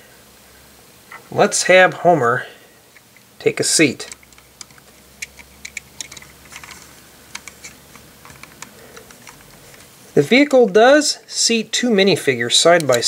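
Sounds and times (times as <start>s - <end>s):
plastic toy bricks clicking: 4.0s - 9.5s.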